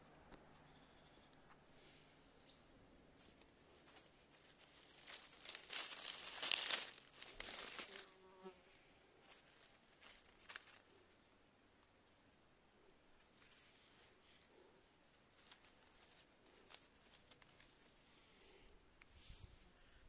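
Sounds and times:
close rustling and crackling: 3.1s - 11.9s, 13.2s - 18.7s.

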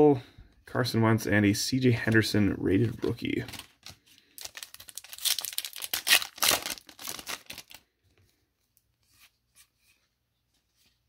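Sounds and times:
foil wrapper crinkling: 3.5s - 7.8s.

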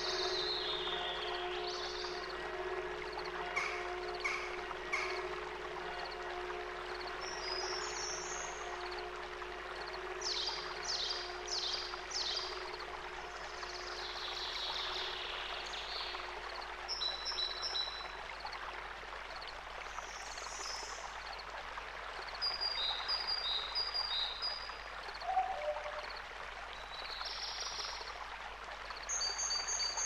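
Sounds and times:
low steady tone: 0.0s - 18.7s, 25.1s - 26.9s
flowing water: 0.0s - 30.0s.

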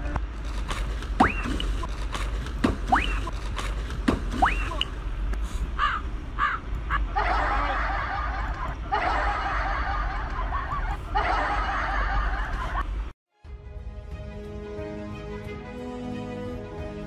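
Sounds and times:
canned laughter: 5.8s - 13.0s.

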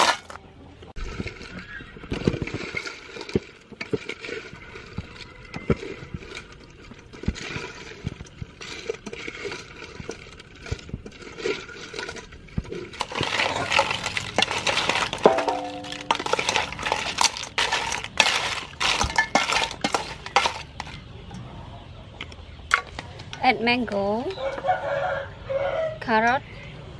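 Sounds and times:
scraping in bowl: 1.0s - 21.0s
shells clattering in steel bowl: 1.1s - 21.0s
metal bowl ringing: 15.2s - 16.8s.

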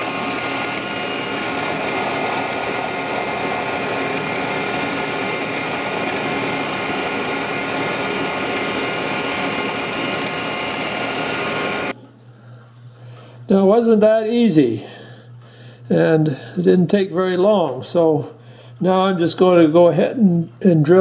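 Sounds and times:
drill press drilling wood: 0.0s - 11.9s.

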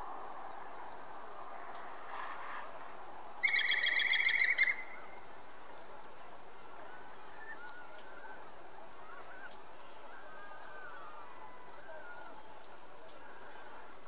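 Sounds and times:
woodpecker calling: 3.4s - 5.0s.

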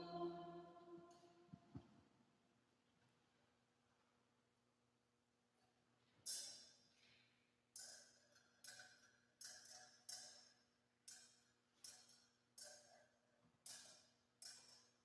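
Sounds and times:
faint metallic clinks: 5.7s - 15.0s.

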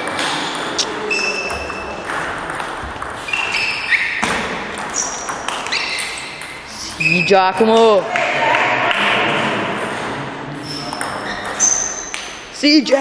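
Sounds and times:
ping pong ball knocking: 0.0s - 7.0s, 10.9s - 12.3s
shoes squeaking on floor: 0.6s - 2.2s, 2.9s - 8.0s, 10.6s - 12.5s.

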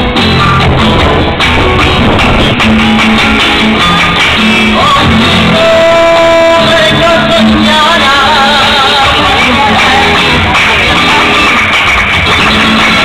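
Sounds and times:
acoustic guitar: 0.0s - 13.0s
person singing: 3.7s - 13.0s.

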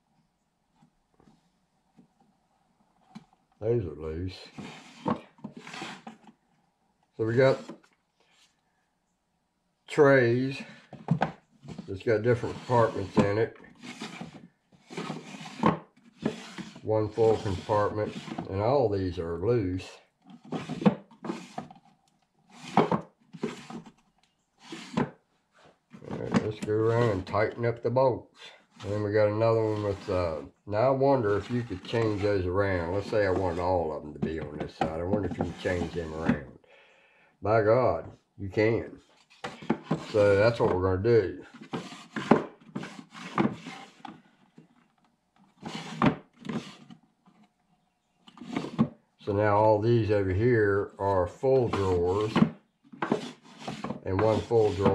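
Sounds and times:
wooden drawer sliding: 4.5s - 6.2s, 11.0s - 18.5s, 20.4s - 21.8s, 22.5s - 23.9s, 24.6s - 25.1s, 26.0s - 27.4s, 31.2s - 36.4s, 39.3s - 40.8s, 41.5s - 44.1s, 45.5s - 46.9s, 48.4s - 48.9s, 51.6s - 54.9s
wooden drawer knocks and scraping: 22.6s - 23.9s, 26.0s - 27.4s, 34.2s - 36.5s, 41.6s - 44.1s, 51.6s - 54.9s.

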